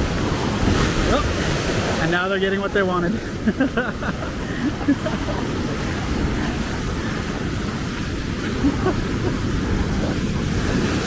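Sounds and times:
heavy surf breaking: 0:00.0 - 0:11.0
wind noise on microphone: 0:04.1 - 0:11.0.

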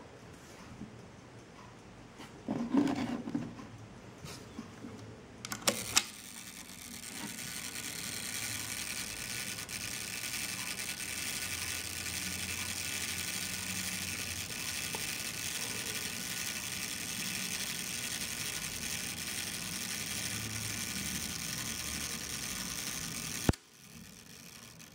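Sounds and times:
camera self-timer whirring: 0:05.5 - 0:24.9.

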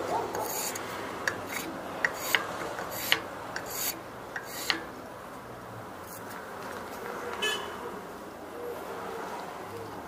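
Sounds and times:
scraping on wooden handle: 0:00.0 - 0:05.0.

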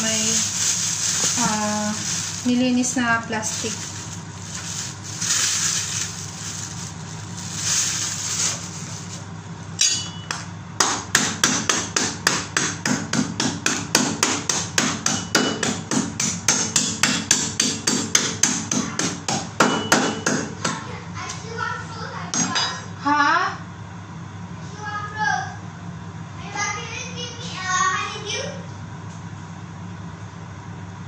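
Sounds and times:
cleaver chopping on cutting board: 0:10.8 - 0:20.8.

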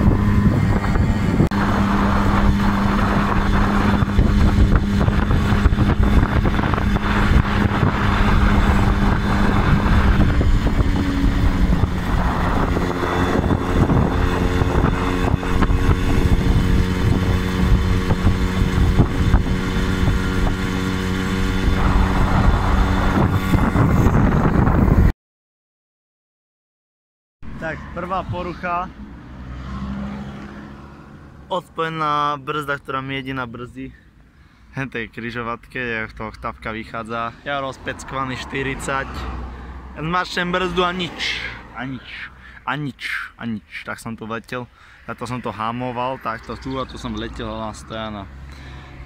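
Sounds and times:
moped engine running: 0:00.0 - 0:24.4
wind buffeting microphone: 0:00.0 - 0:25.1.

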